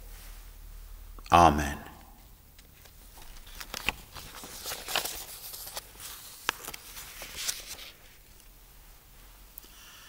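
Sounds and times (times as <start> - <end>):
paper rustling: 2.6 - 8.5.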